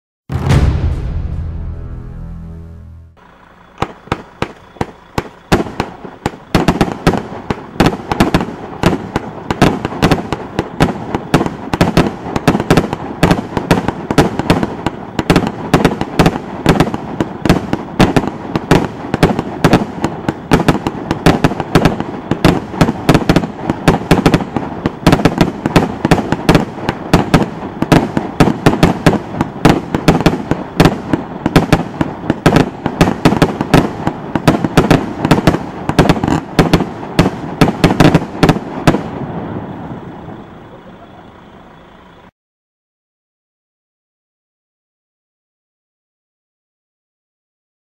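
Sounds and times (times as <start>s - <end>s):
firework shots firing: 0.3s - 1.3s, 3.2s - 41.3s
firework stars popping: 3.2s - 42.3s.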